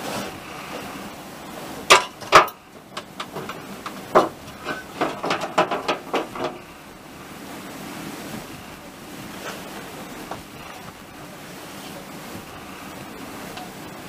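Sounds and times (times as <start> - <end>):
metallic knocks and clatter: 1.9 - 6.6.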